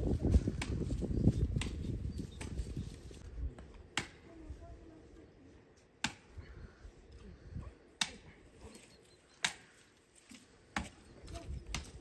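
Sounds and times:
digging tool striking ground: 3.9 - 4.2.

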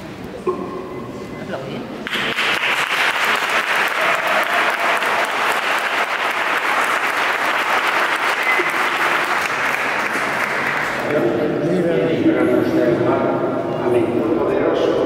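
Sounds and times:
crowd applauding: 2.0 - 11.4.

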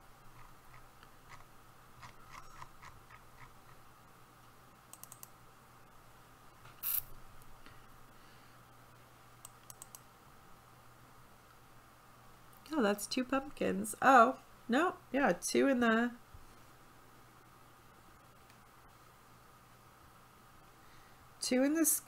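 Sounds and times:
computer mouse and keys clicking: 0.3 - 3.8, 4.9 - 5.4, 9.4 - 10.1.

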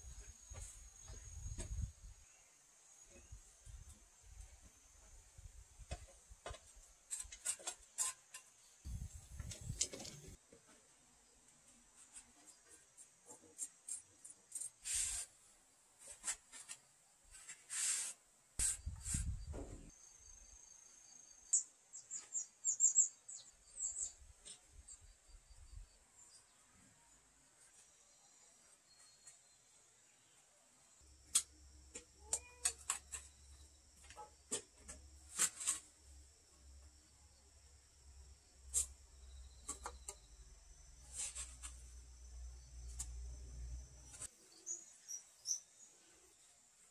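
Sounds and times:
crickets chirping: 19.9 - 21.7, 32.9 - 46.4.

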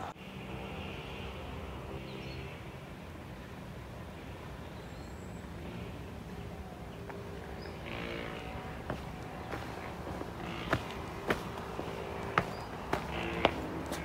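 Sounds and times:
faint droning hum: 5.6 - 14.0.

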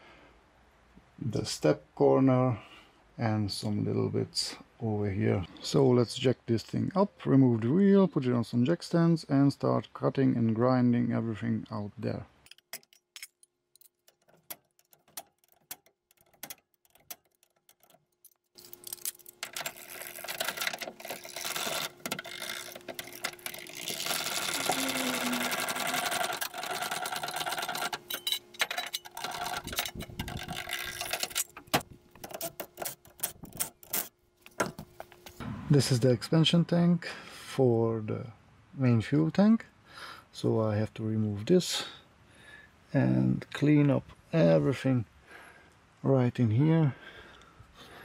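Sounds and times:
metallic clicking of hand tools: 12.4 - 18.4, 25.5 - 34.1.

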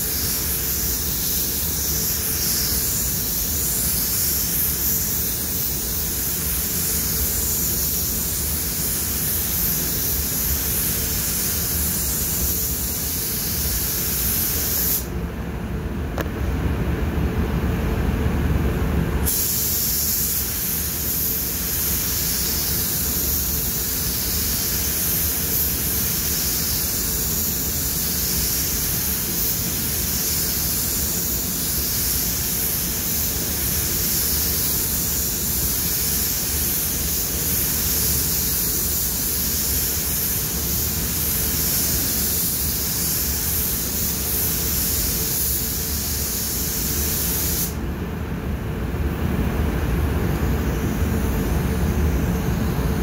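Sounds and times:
spray gun hissing: 0.0 - 15.1, 19.2 - 47.8
low steady rumble: 15.2 - 19.2.

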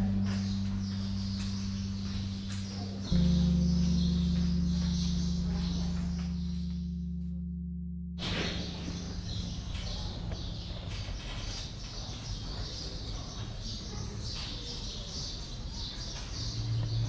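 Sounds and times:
birds chirping: 0.0 - 7.3, 8.2 - 17.0
steady low rumble: 0.0 - 11.3.

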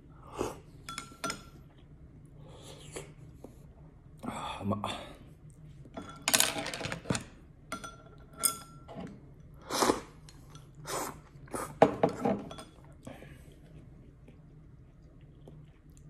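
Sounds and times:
person slurping food: 9.6 - 10.2, 10.8 - 11.8.

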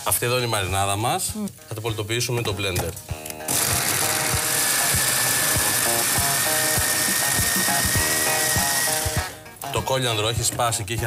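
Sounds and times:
electric chopper whining: 3.5 - 9.4.

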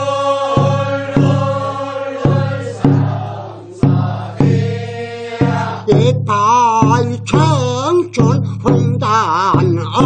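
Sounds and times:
voices chanting a held note: 0.0 - 6.0
hand drum strikes: 0.5 - 1.5, 2.2 - 4.8, 5.4 - 10.0.

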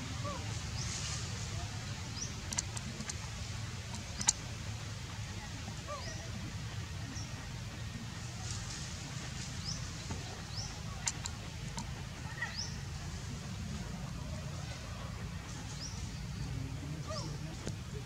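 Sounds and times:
faint sharp clicks: 2.1 - 4.6, 10.0 - 12.0.

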